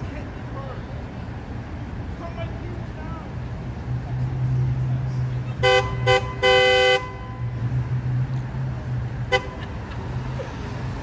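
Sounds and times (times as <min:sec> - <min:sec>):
low engine hum: 0:00.0 - 0:11.0
car horn honking: 0:05.6 - 0:07.5, 0:09.2 - 0:09.7.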